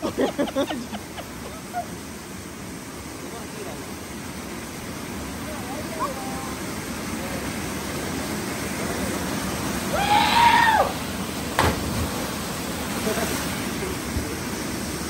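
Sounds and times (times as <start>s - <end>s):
waterfall pouring into pool: 1.4s - 15.0s
person yelling: 9.9s - 10.9s
splash smack on water: 11.6s - 12.2s.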